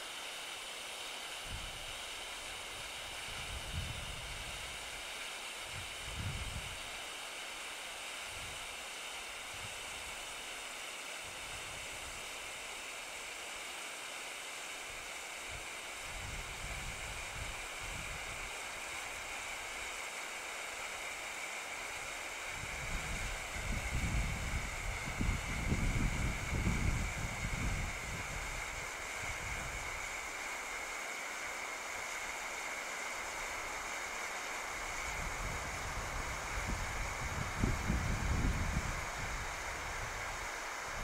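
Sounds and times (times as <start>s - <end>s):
flare burning with a hiss: 0.0s - 41.0s
wind rumble on microphone: 3.3s - 4.7s, 5.7s - 6.9s, 16.1s - 18.4s, 22.6s - 30.0s, 35.0s - 41.0s.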